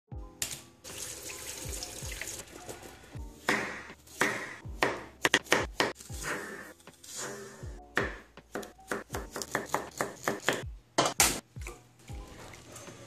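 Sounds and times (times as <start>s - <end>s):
background music with steady beat: 0.1s - 13.0s
knife chopping on wooden board: 3.4s - 6.0s, 8.0s - 11.4s.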